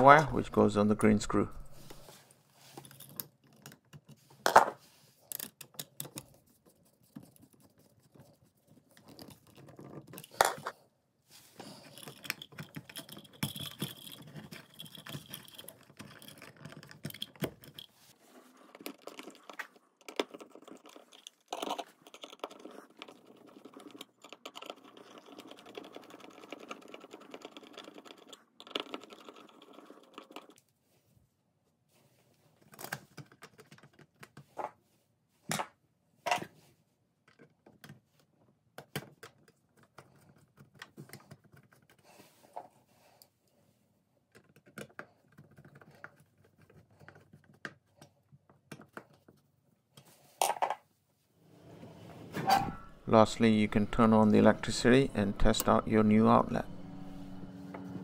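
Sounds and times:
hand tools clicking and scraping: 52.4s - 58.0s.

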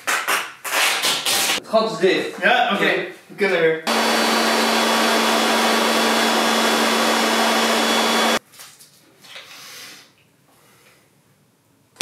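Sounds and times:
leaf blower air rush and hum: 3.9s - 8.4s.

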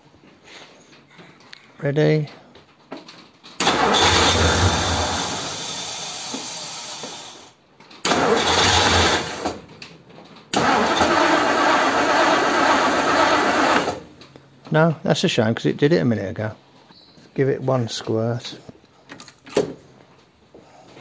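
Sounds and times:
starter motor cranking engine: 3.6s - 9.7s, 10.5s - 14.1s.

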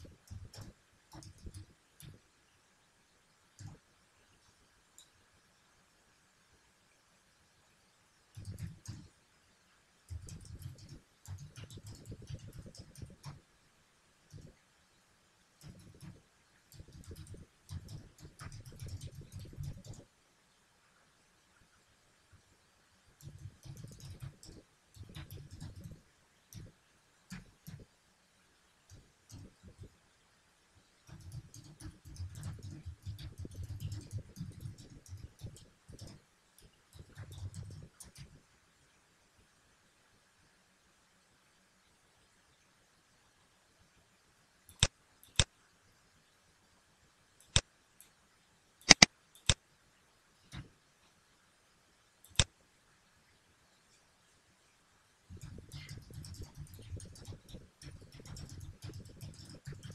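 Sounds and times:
computer mouse clicking: 0.0s - 2.2s, 3.6s - 3.8s, 8.3s - 9.1s, 10.1s - 13.4s, 14.3s - 14.6s, 15.6s - 20.1s, 23.2s - 27.9s, 28.9s - 29.9s, 31.1s - 38.4s, 44.7s - 45.5s, 47.4s - 48.2s, 48.8s - 49.6s, 52.2s - 52.5s, 55.3s - 59.9s
keyboard key clicks: 48.9s - 49.6s.

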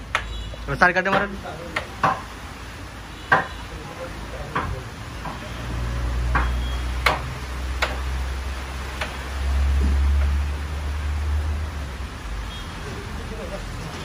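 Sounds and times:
carrom striker clacking on wood: 0.1s - 0.3s, 1.0s - 2.3s, 3.3s - 3.6s, 4.5s - 5.5s, 6.3s - 8.1s.

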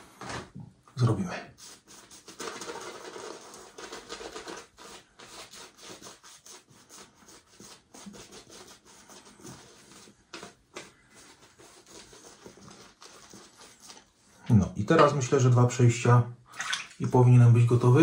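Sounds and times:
shaving brush scrubbing lather: 1.5s - 14.3s.

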